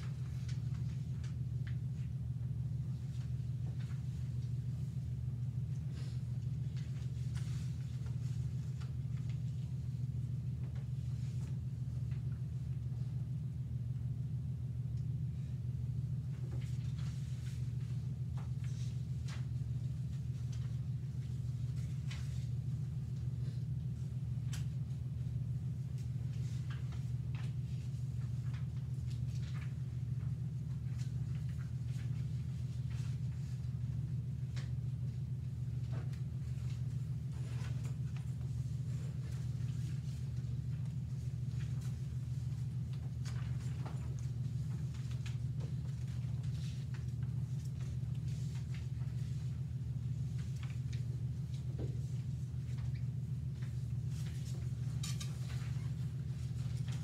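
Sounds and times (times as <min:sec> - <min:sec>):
low room hum: 0:00.0 - 0:57.0
faint clicks and rustles: 0:16.0 - 0:57.0.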